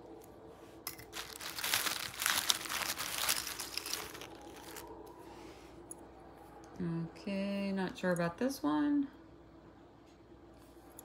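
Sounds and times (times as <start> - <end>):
plastic bag crinkling: 0.9 - 5.0.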